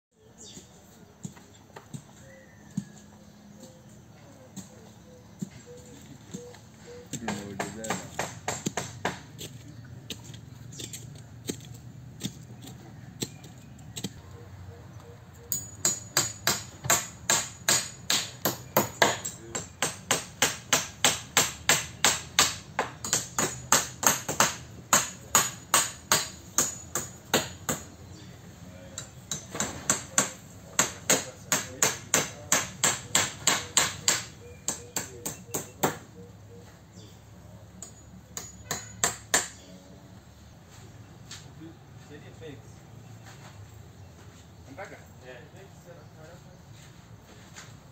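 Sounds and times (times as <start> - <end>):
hammer striking nails into wood: 7.2 - 9.4, 15.6 - 27.9, 29.0 - 36.0, 37.8 - 39.6.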